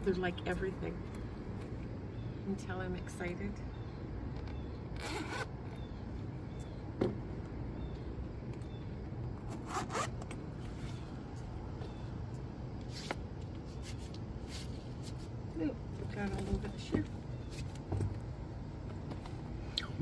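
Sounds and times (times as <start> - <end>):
boot zipper rasping: 5.0 - 5.5, 9.5 - 10.2.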